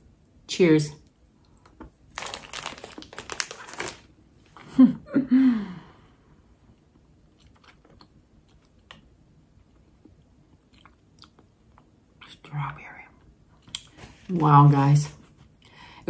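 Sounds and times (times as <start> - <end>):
person chewing candy: 7.2 - 12.0.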